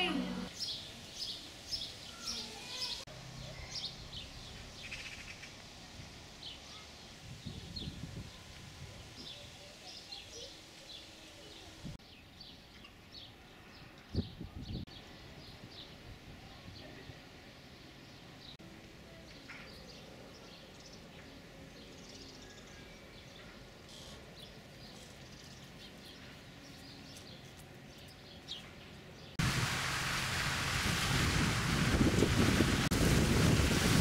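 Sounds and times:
loud steady rushing noise: 29.4 - 34.0.

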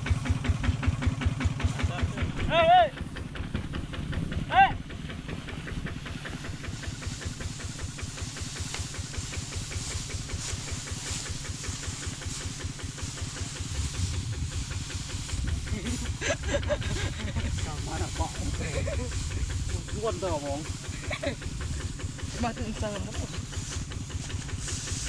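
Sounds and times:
diesel engine running: 0.0 - 25.0
dry straw rustling: 5.2 - 25.0.

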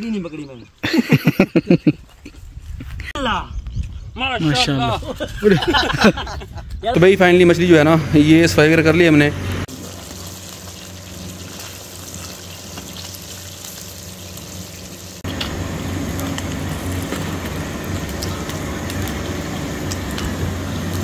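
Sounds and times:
fish deep-frying in oil: 9.7 - 21.0.

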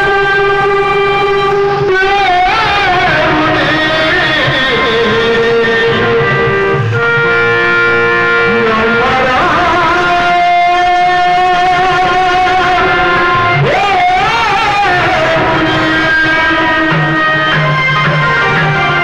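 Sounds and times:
wavering held melody notes: 0.4 - 19.0
drumming: 1.4 - 19.0.

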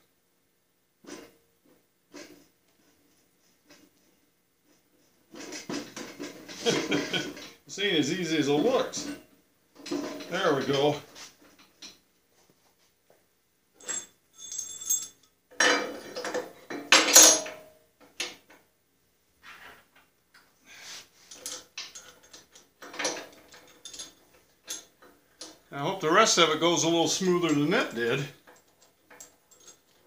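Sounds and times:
metal clanks and knocks: 9.8 - 10.4, 13.8 - 18.6, 21.4 - 25.6
ringing metal clinks: 13.8 - 15.3.

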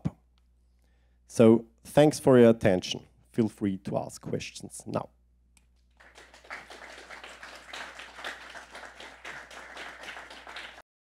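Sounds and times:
audience applauding: 6.0 - 10.9.

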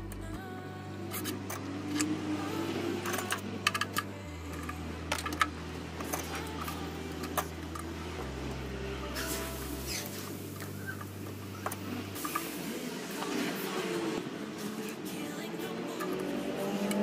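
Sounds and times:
tools clicking and rattling: 3.0 - 7.9.

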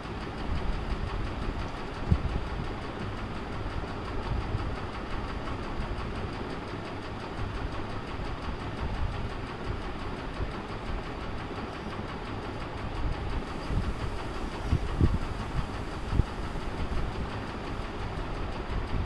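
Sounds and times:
mechanical rumble: 0.4 - 19.0
hiss: 13.3 - 18.2.

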